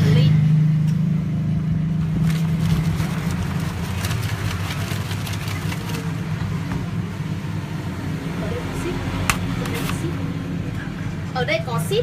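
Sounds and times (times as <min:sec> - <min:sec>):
plastic cup crackling and clicking: 0:09.2 - 0:10.2.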